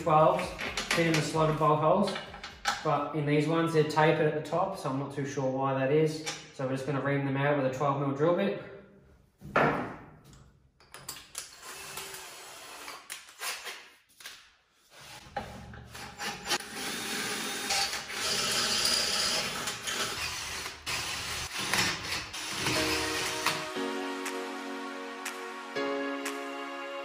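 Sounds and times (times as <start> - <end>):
cordless drill grinding metal: 15.9 - 23.7.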